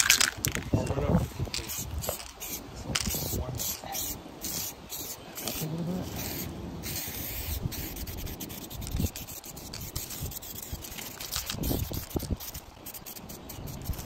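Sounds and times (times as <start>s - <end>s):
spray paint can hissing: 1.6s - 14.0s.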